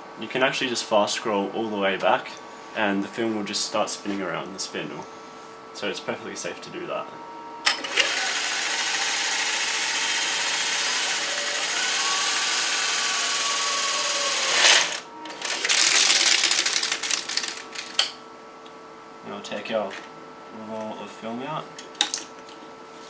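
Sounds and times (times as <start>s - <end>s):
scanner whirring rush: 8.0s - 17.7s.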